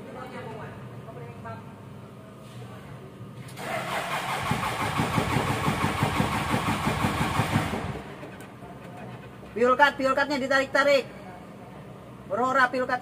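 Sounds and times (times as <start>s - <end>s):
diesel engine cranking and running: 3.5s - 10.8s.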